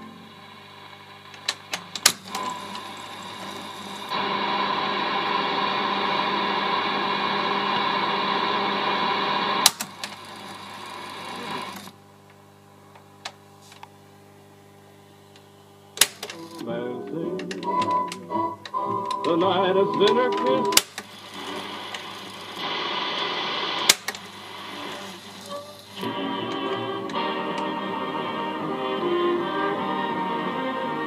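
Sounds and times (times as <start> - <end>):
sharp mechanical clicks: 9.6 - 11.9, 23.9 - 24.3
motor whirring: 9.6 - 12.0, 20.0 - 27.8.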